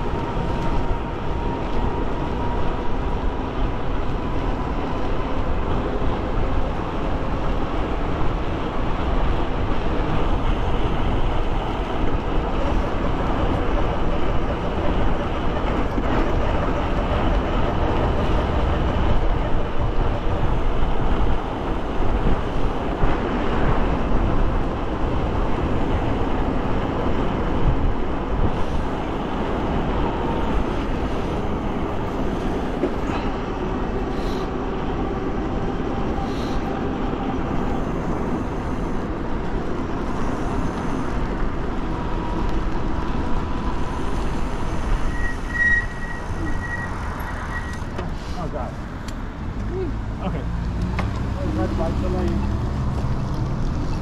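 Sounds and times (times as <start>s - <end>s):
wind rumble on microphone: 0.0s - 54.0s
tyres hissing on wet pavement: 34.1s - 34.5s, 36.2s - 36.7s, 47.7s - 48.7s.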